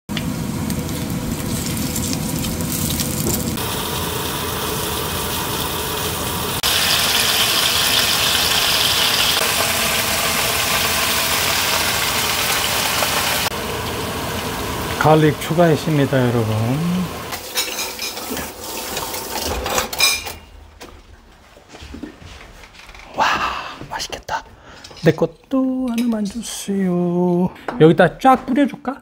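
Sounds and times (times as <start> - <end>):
food hissing on a stove: 0.5 - 19.5.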